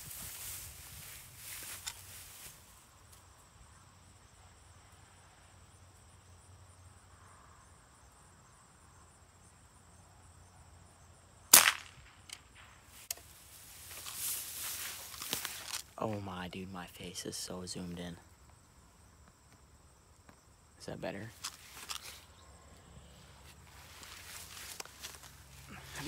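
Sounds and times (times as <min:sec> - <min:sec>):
loud gunshot: 0:11.5 - 0:12.2.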